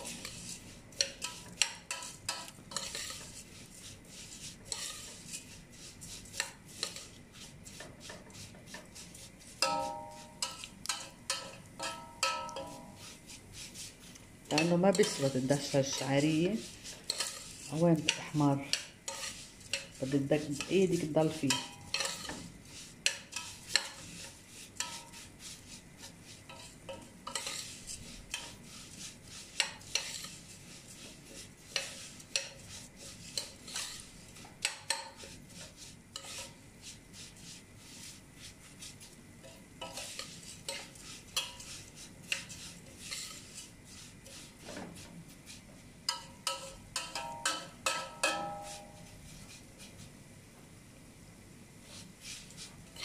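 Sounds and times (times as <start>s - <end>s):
spoon scraping metal pot: 0.0s - 13.0s, 13.7s - 25.5s, 26.5s - 36.6s, 39.4s - 44.6s, 46.1s - 49.6s, 52.3s - 53.0s.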